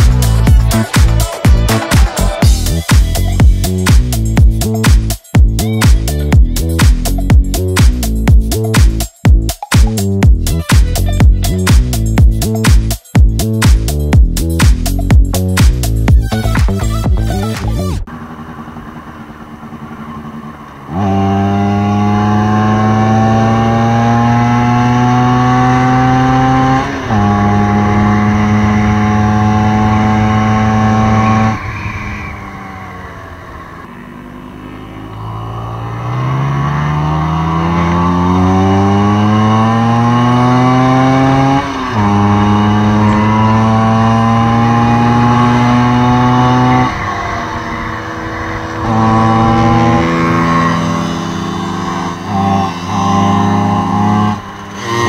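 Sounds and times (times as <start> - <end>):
scooter engine shifting gears: 13.6 - 55.0.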